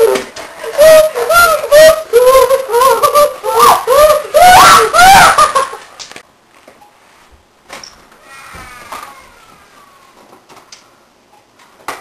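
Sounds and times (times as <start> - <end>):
kids shrieking and laughing: 0.0 - 6.0, 8.2 - 10.2.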